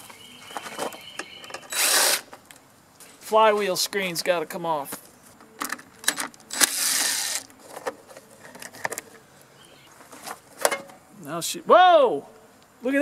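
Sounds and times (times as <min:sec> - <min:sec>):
cordless drill: 0:01.7 - 0:02.2.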